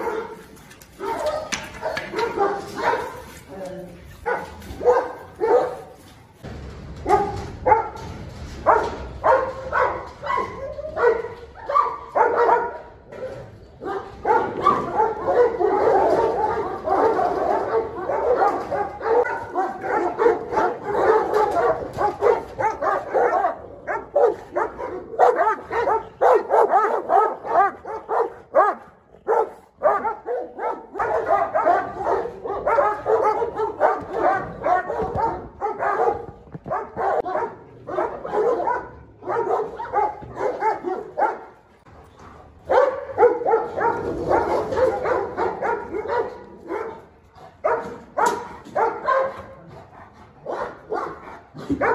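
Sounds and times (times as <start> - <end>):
large dogs barking and yelping: 0.0 - 51.9.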